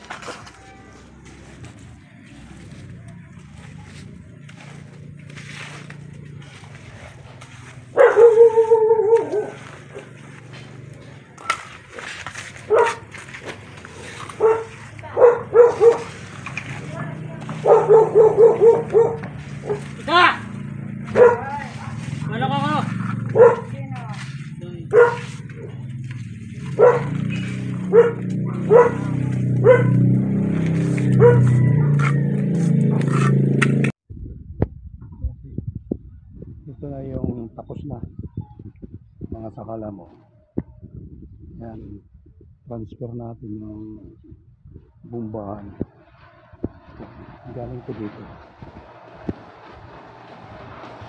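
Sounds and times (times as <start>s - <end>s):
dog barking: 7.9s - 10.2s, 12.7s - 13.1s, 14.3s - 16.2s, 17.5s - 20.0s, 21.1s - 21.7s, 23.2s - 23.8s, 24.9s - 25.9s, 26.6s - 30.0s, 31.1s - 32.2s.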